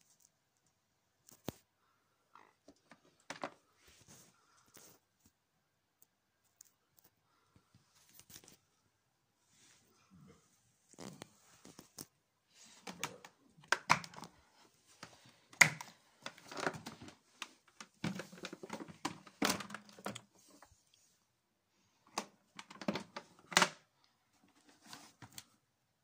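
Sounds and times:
plastic clicks knocks and rattles: 0:12.8 - 0:14.3, 0:15.0 - 0:20.3, 0:22.1 - 0:23.8.

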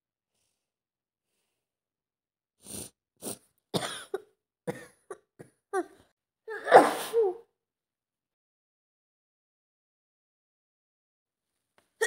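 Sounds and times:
person coughing: 0:03.8 - 0:05.9, 0:06.5 - 0:07.4.

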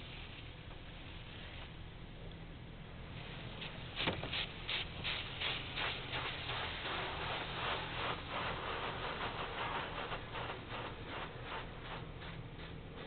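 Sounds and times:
steady low hum: 0:00.0 - 0:13.0
pulsing water spray hiss: 0:03.0 - 0:13.0.

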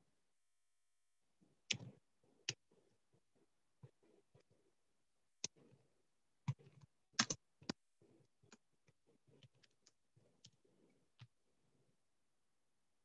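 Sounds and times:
computer keys clicking: 0:07.2 - 0:07.8.

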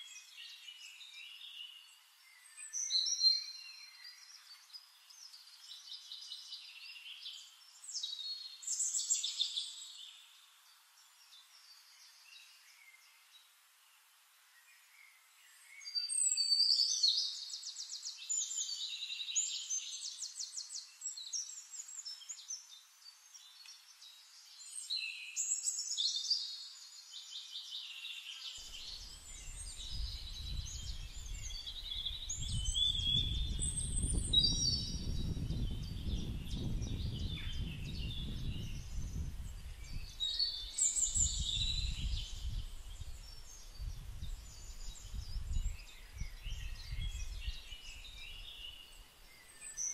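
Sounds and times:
songbirds chirping and trilling: 0:00.0 - 0:49.9.

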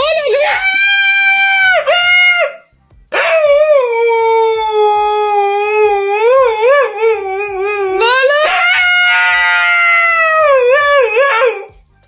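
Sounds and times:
dog howling: 0:00.0 - 0:02.6, 0:03.2 - 0:11.7.

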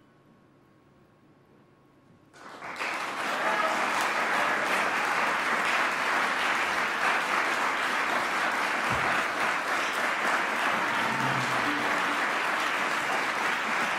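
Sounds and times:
audience applauding: 0:02.4 - 0:13.9.

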